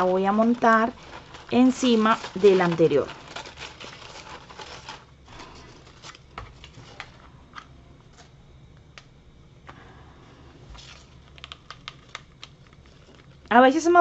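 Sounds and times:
crepe paper rustling: 0.0s - 7.2s.

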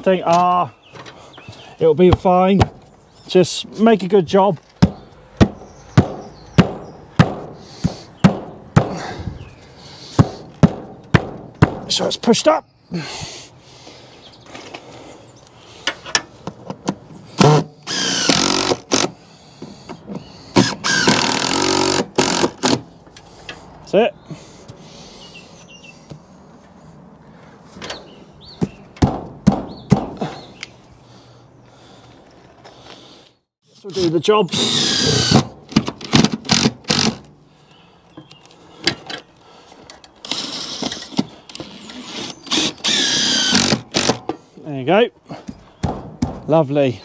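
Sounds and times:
nails hammered into plywood: 4.8s - 9.0s, 29.0s - 30.2s
sharp knocks on timber: 4.8s - 9.0s, 10.2s - 11.9s, 28.6s - 30.2s, 45.8s - 46.5s.

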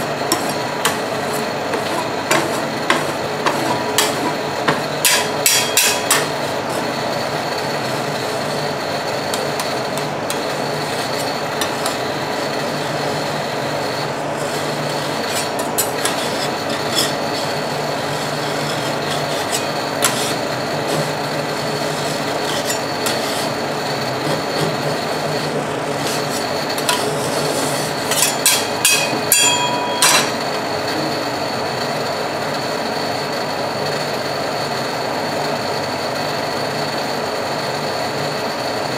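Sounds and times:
spatula scraping cold plate: 0.0s - 7.0s, 9.3s - 13.0s, 14.4s - 30.6s
steady hum: 0.0s - 33.1s
spatula tapping metal plate: 28.1s - 30.4s.

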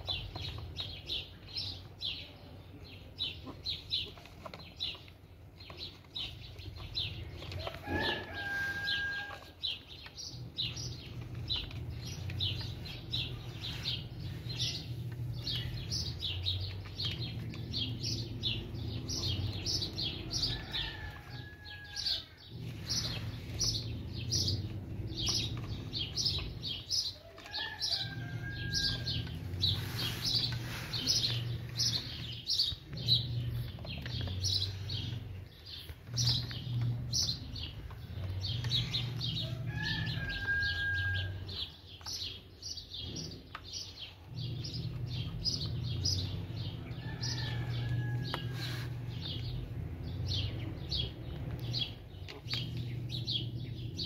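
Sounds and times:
small birds chirping: 0.0s - 54.0s.

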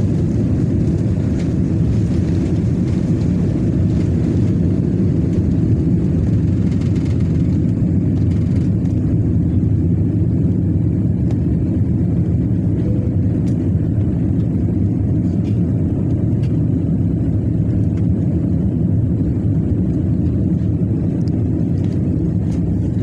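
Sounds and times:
air rushing past cabin: 0.0s - 23.0s
jet engines at climb power: 0.0s - 23.0s.

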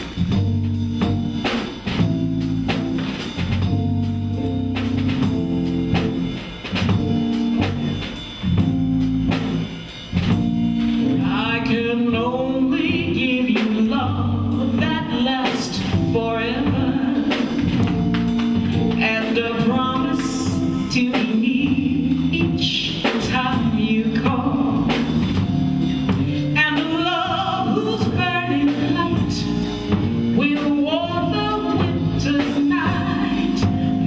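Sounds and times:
drum kit: 0.0s - 34.0s
woman singing into microphone: 11.2s - 17.6s, 19.0s - 25.0s, 26.6s - 29.7s, 30.4s - 33.8s.

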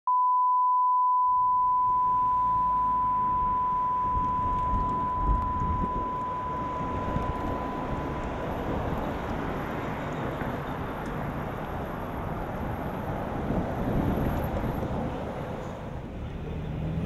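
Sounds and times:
steady test-tone beep: 0.1s - 9.2s
street traffic rumble: 1.9s - 17.0s.

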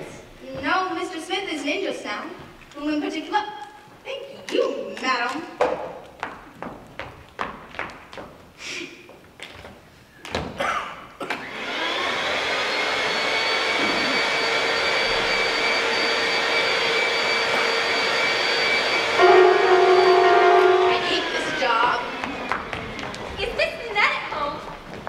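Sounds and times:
vacuum cleaner motor whining: 11.4s - 23.4s
held musical note: 14.1s - 22.6s.

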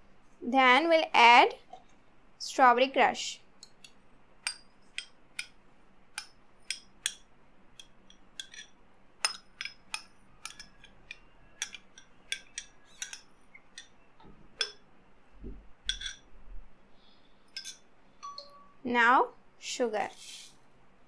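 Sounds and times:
metal spoon clinking on bowl: 7.8s - 14.0s, 15.9s - 16.2s.

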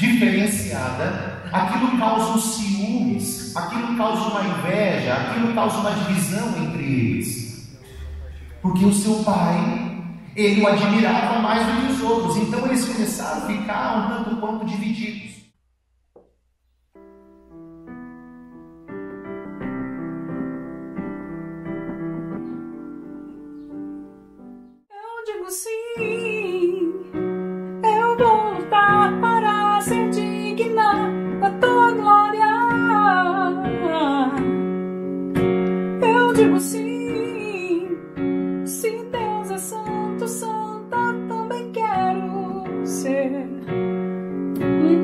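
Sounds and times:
digital piano playing chords: 0.0s - 15.0s, 16.9s - 24.9s, 25.9s - 45.0s
woman singing: 24.9s - 27.2s, 27.8s - 34.6s, 36.0s - 38.0s, 38.7s - 43.7s, 44.6s - 45.0s.

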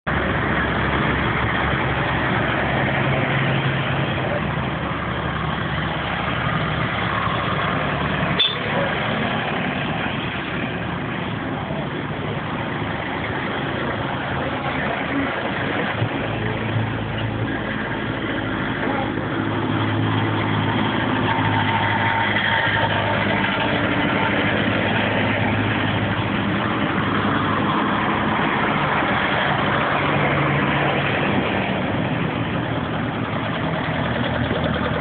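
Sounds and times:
tractor engines driving past: 0.0s - 35.0s.

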